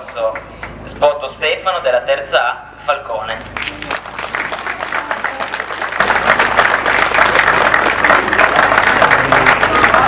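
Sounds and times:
crowd applauding: 3.5 - 10.0.

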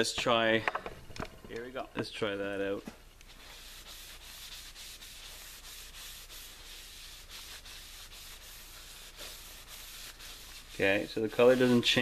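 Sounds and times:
cloth wiping wood: 3.3 - 12.0.

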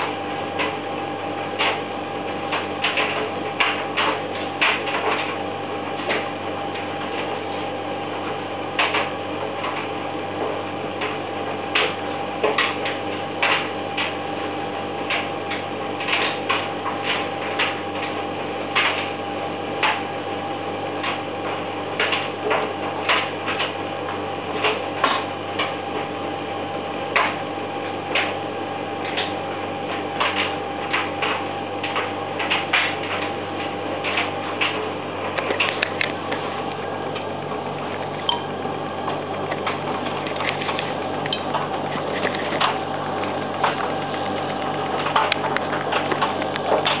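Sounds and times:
washing machine motor hum: 0.0 - 47.0
clicks and knocks of laundry turning: 1.6 - 1.8, 2.4 - 5.4, 8.8 - 14.2, 15.0 - 19.1, 21.0 - 23.8, 29.0 - 47.0.

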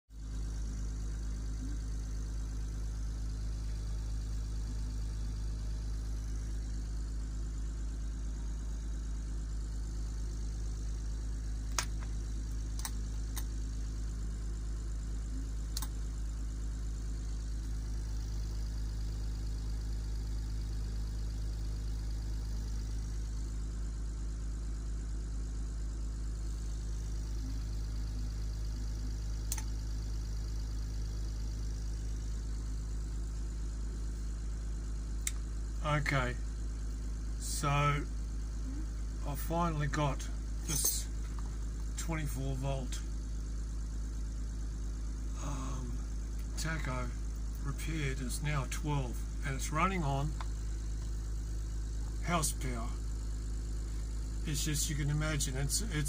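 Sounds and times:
sharp clicks: 11.6 - 13.6, 15.7 - 16.0, 29.4 - 29.7, 35.2 - 35.4.

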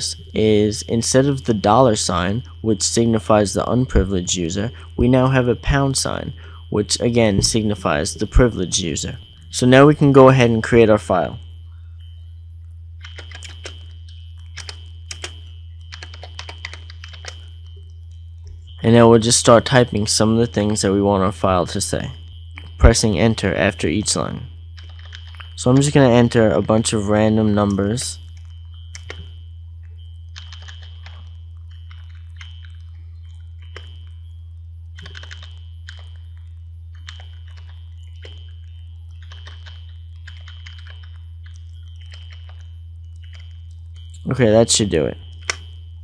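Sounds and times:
steady low hum: 0.0 - 46.0
keyboard keys clicking: 13.0 - 17.5, 24.8 - 25.6, 28.4 - 29.3, 30.3 - 32.9, 35.0 - 36.2, 36.9 - 38.5, 39.1 - 44.2, 45.3 - 45.7.

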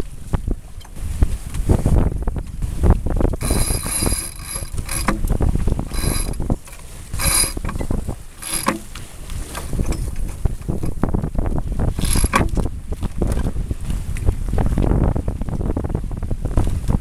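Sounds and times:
water rushing along hull: 0.0 - 17.0
wind: 0.0 - 17.0
boat blocks and winch squeaking: 3.4 - 12.7.

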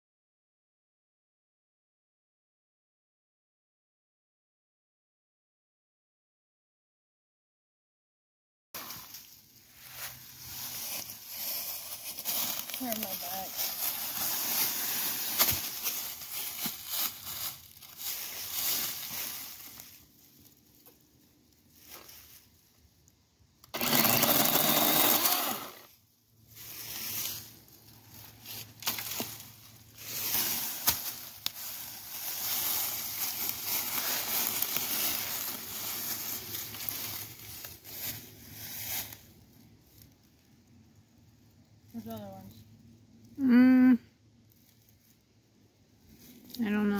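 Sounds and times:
dry leaves rustling and crunching: 8.8 - 22.7, 23.8 - 40.5.

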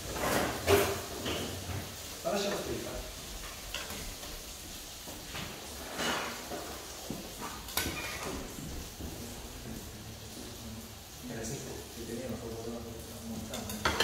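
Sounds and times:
metal tongs clinking on a pot: 13.4 - 14.0.

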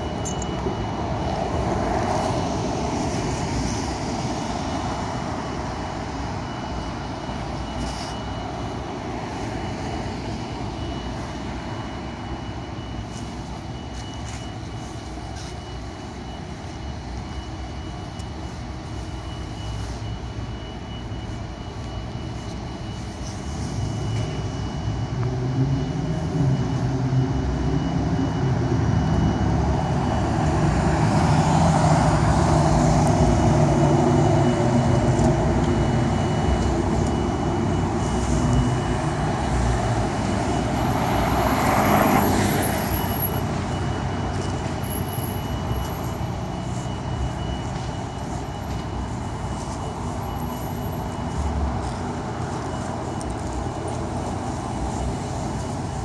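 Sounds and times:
rumble of passing vehicles: 0.0 - 56.0
approaching vehicle engine: 25.3 - 56.0.

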